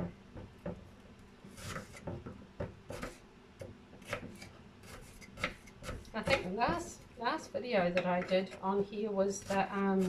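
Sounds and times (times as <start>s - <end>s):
knife scraping board: 1.5s - 2.2s, 2.9s - 3.2s, 4.0s - 6.5s, 9.4s - 10.0s
knife chopping on wooden board: 1.6s - 6.9s.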